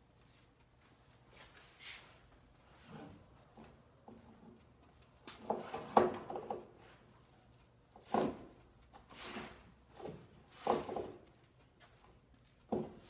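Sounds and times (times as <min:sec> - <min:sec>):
knocks and scrapes on wooden table: 0:09.2 - 0:11.2.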